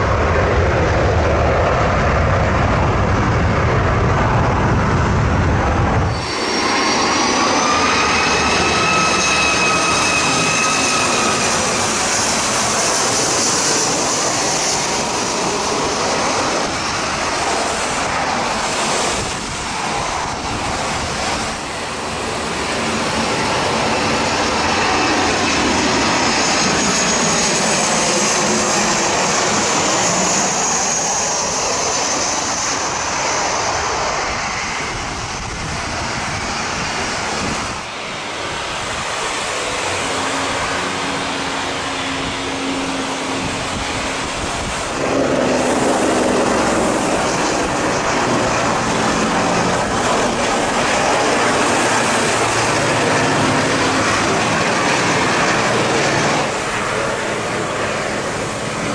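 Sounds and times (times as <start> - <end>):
high whining jet tones: 0.0 - 58.9
jet engines roaring overhead: 0.0 - 58.9.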